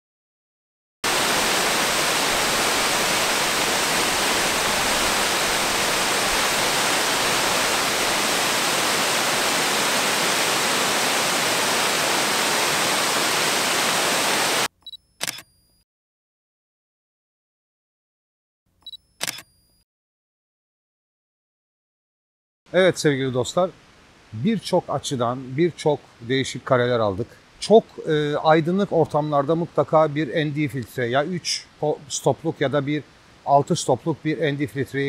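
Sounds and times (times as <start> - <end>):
waterfall rushing: 1.0 - 14.7
short clicks: 14.8 - 15.8, 18.8 - 19.8.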